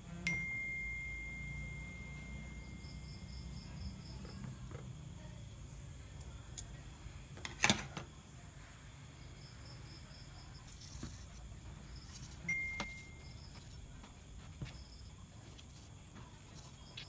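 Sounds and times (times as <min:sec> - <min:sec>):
crickets chirring: 0:00.3 - 0:17.0.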